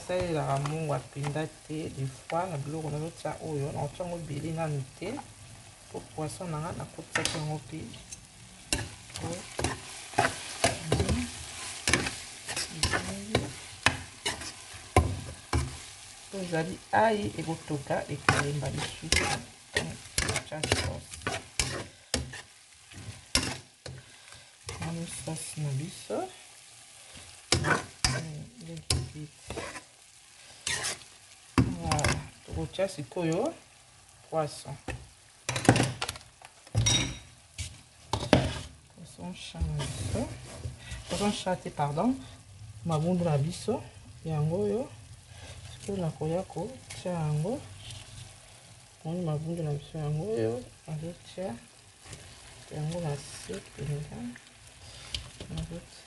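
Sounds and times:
vegetables sizzling in oil: 0:00.0 - 0:56.0
utensil scraping a pan: 0:07.2 - 0:15.9, 0:17.2 - 0:24.0, 0:27.2 - 0:29.9, 0:30.6 - 0:31.1, 0:37.5 - 0:38.8, 0:39.6 - 0:41.4.

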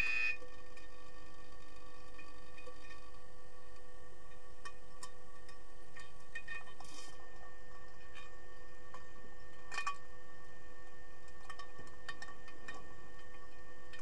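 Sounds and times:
clicks and knocks underwater: 0:11.3 - 0:14.0.

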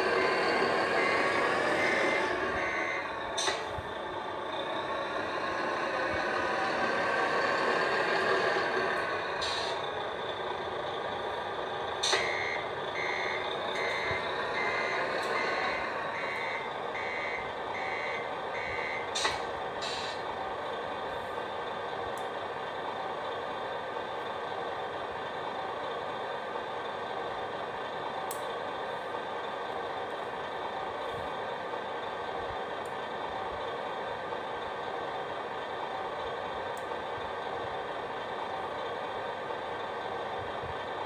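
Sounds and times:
reversing beeper: 0:00.0 - 0:03.6, 0:12.0 - 0:19.2
diesel truck engine sound: 0:00.0 - 0:41.0.

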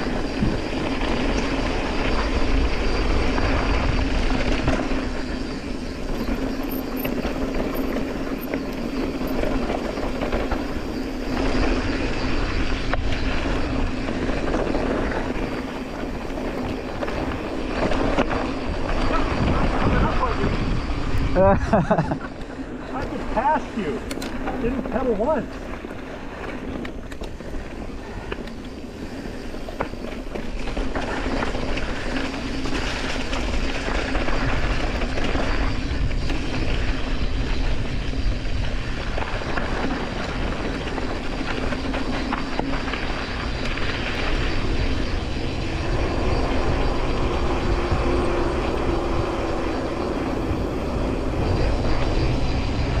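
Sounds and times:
bike tyres rolling on dirt: 0:00.0 - 0:53.0
wind on microphone: 0:00.0 - 0:53.0.

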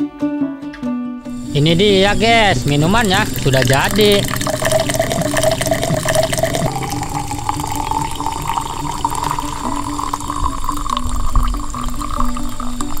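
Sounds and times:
liquid pouring into a glass: 0:02.8 - 0:13.0.

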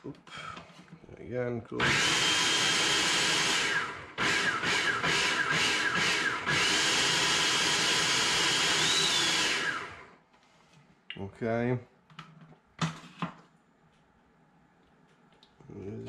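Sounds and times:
blender running: 0:01.8 - 0:10.2.

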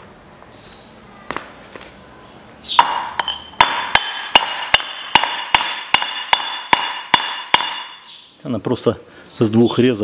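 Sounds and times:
hammer striking steel: 0:02.7 - 0:08.1.

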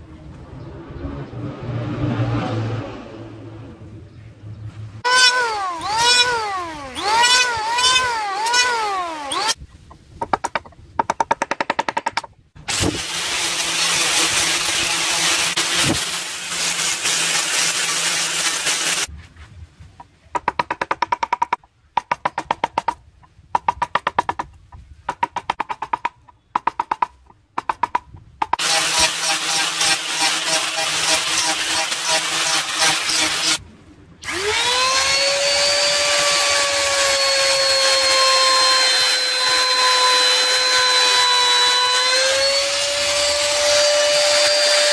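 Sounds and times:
angle grinder sanding wood: 0:05.0 - 0:09.6, 0:12.7 - 0:19.1, 0:28.6 - 0:33.6, 0:34.3 - 0:44.9
power tool whine: 0:05.0 - 0:09.6, 0:12.7 - 0:19.1, 0:28.6 - 0:33.6, 0:34.2 - 0:44.9
fast rattling bursts: 0:05.1 - 0:09.6, 0:10.2 - 0:19.1.

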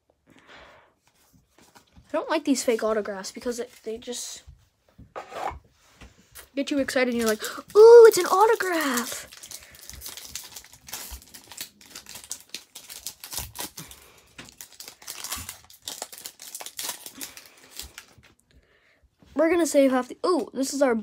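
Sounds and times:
wrapper crinkling and tearing: 0:06.4 - 0:18.4.

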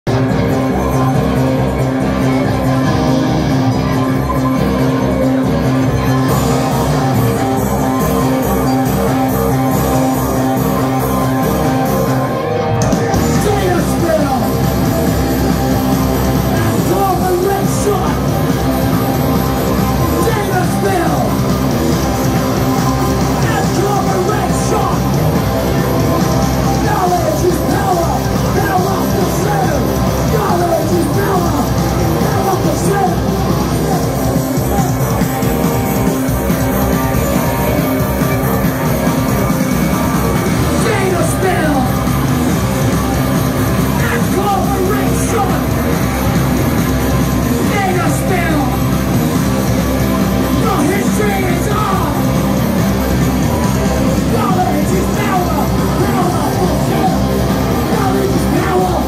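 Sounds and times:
distorted electric guitars: 0:00.0 - 0:59.0
drums: 0:00.0 - 0:59.0
punk rock band playing: 0:00.0 - 0:59.0
shouted vocals: 0:19.2 - 0:39.1, 0:40.4 - 0:42.6, 0:50.3 - 0:59.0.

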